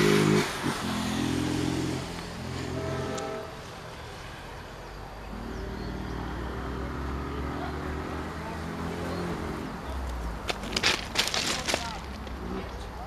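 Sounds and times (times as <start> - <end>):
diesel locomotive engine rumble: 1.7 - 6.8.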